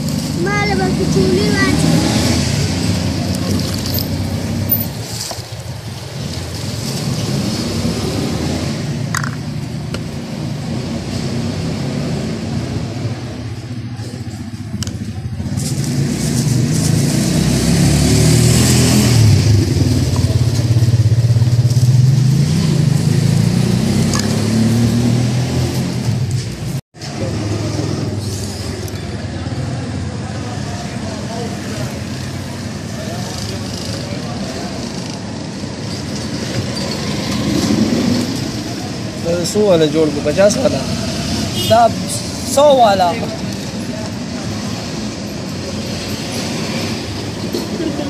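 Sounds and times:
cars and motorcycles passing: 0:00.0 - 0:48.0.

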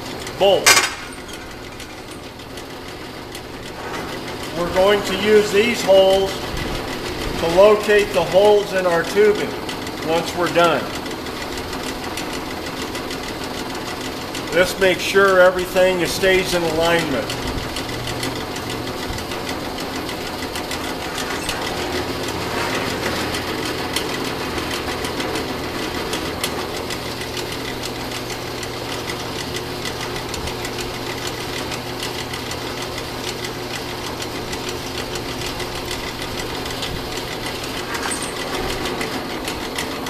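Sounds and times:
drill press drilling through steel: 0:15.8 - 0:40.0.

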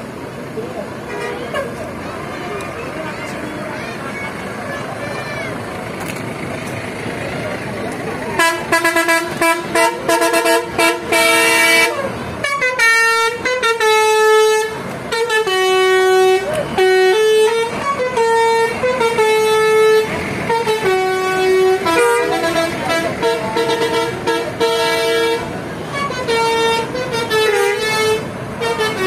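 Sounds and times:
bus air horns playing a tune: 0:00.9 - 0:05.6, 0:08.3 - 0:29.0.

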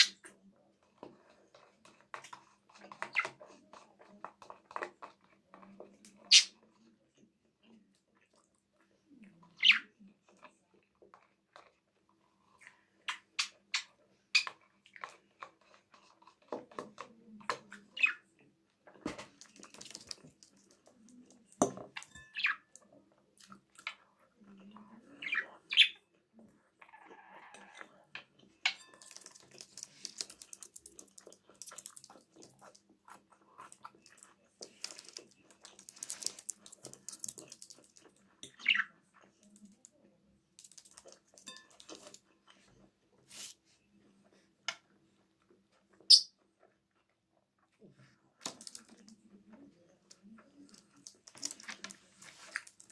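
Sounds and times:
chewing: 0:00.0 - 0:43.4, 0:44.2 - 0:52.9
budgerigar chirping: 0:25.2 - 0:26.0.

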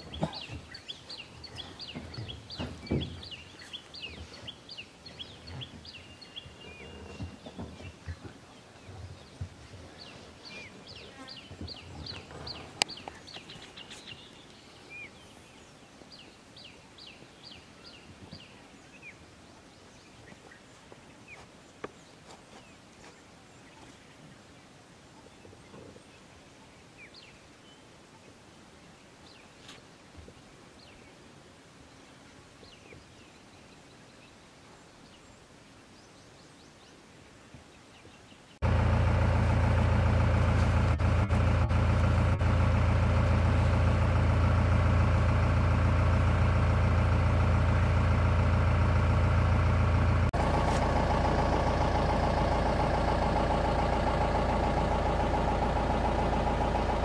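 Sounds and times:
vehicle engine idling: 0:00.0 - 0:15.1, 0:38.6 - 0:57.0.

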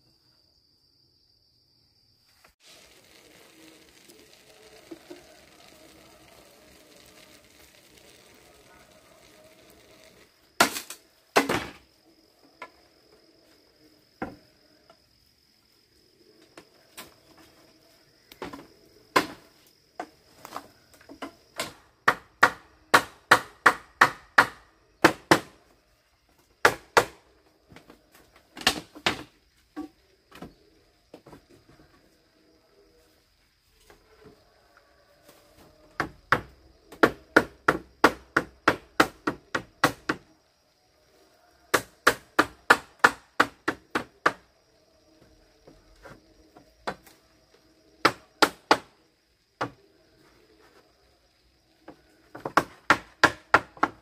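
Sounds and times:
high insect trill: 0:00.0 - 0:54.0
hand tool striking hard material: 0:10.6 - 0:11.7.

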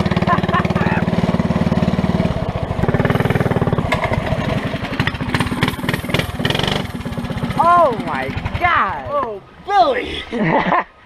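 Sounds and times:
go-kart engine running: 0:00.0 - 0:09.4
sharp engine knocks: 0:02.8 - 0:09.3.

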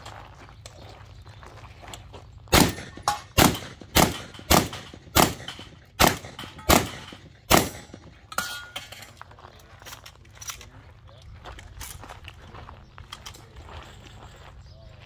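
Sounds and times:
gunshots: 0:02.5 - 0:08.2.

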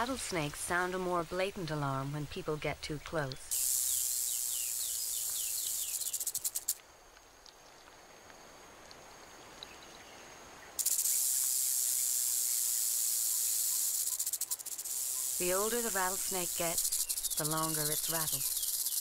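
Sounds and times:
rattlesnake tail rattling: 0:03.5 - 0:06.8, 0:10.8 - 0:19.0.

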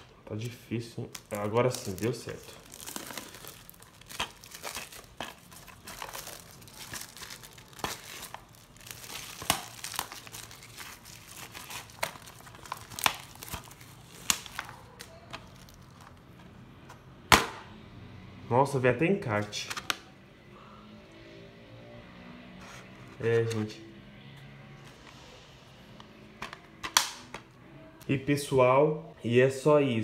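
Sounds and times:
plastic wrap crinkling: 0:00.0 - 0:16.3
plastic case snapping open: 0:26.4 - 0:27.5.

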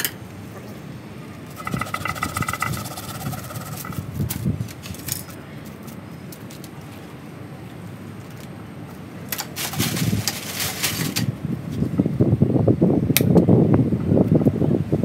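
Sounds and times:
mechanical buzz: 0:01.5 - 0:05.3
leaves rustling: 0:09.4 - 0:11.9.

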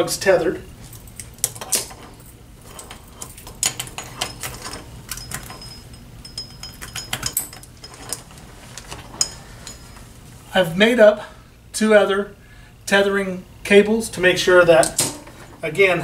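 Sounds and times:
metal clips clinking: 0:01.0 - 0:10.0.

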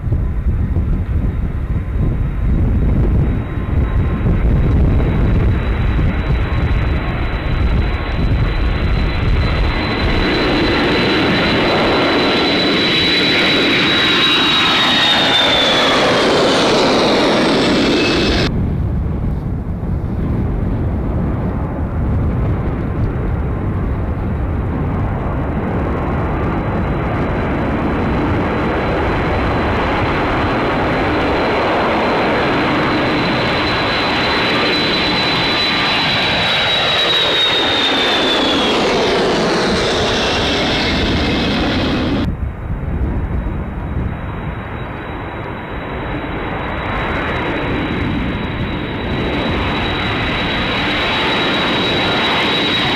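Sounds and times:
jet engines at takeoff: 0:00.0 - 0:52.9.

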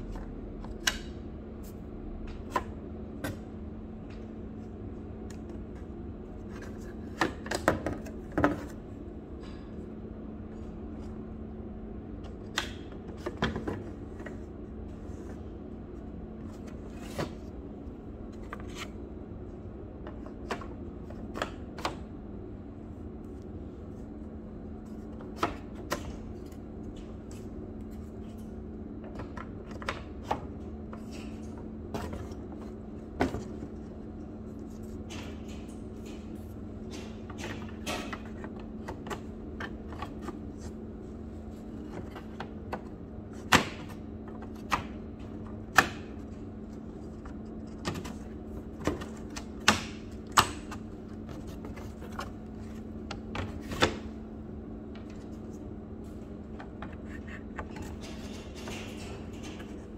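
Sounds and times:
steady low hum: 0:00.0 - 0:59.9.

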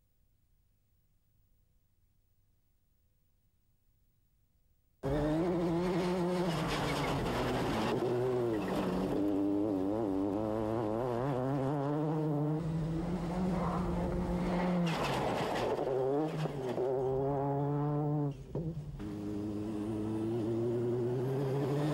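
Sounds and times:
rally car engine at high revs: 0:05.0 - 0:21.9
tyres on gravel: 0:13.4 - 0:16.8.

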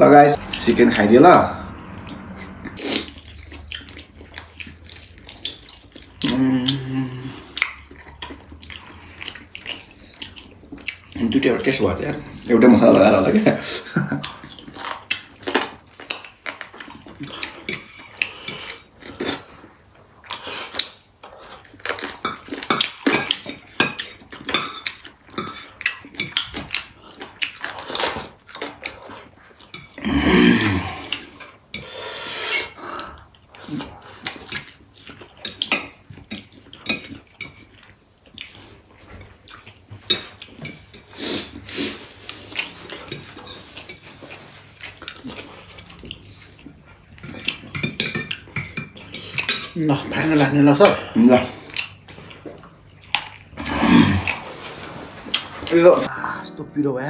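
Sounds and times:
food chewing: 0:01.8 - 0:31.8, 0:32.7 - 0:56.1
noodles slurped: 0:53.1 - 0:55.8.

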